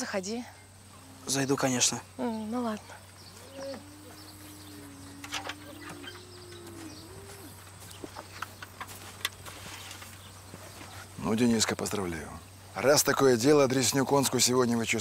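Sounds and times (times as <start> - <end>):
low wavering animal call: 0.9 - 1.6, 3.3 - 7.7.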